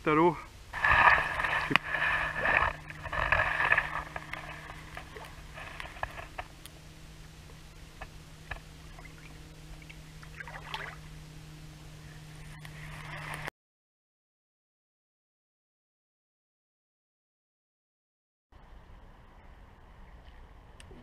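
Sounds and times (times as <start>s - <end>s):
water splashing and sloshing: 0.6s - 13.5s
water dripping: 1.1s - 11.2s.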